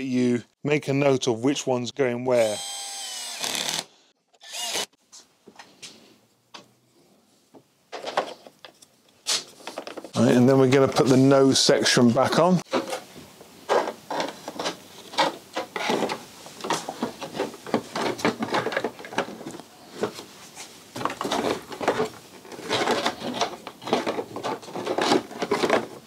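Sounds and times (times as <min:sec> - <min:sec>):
plastic panel scraping and clicking: 0:21.0 - 0:26.0.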